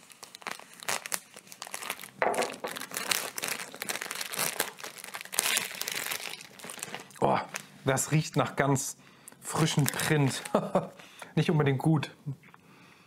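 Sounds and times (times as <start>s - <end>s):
plastic film crinkling: 0.0s - 8.3s, 9.5s - 11.0s.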